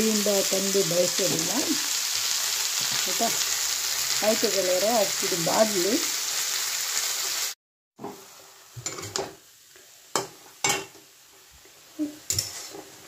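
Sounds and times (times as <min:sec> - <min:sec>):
greens sizzling in a pan: 0:00.0 - 0:13.0
spatula scraping a pan: 0:12.3 - 0:13.0.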